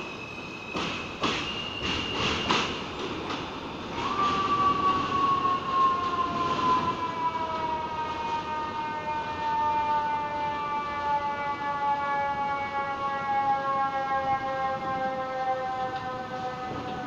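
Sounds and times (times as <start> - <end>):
train wheels knocking on rail joints: 0.7 - 6.9.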